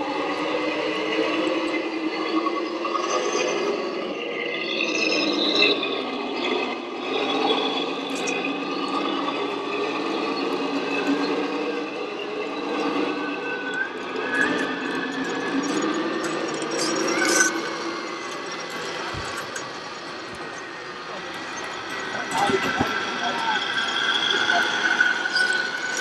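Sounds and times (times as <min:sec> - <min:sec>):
model truck motors whining: 0:05.9 - 0:26.0.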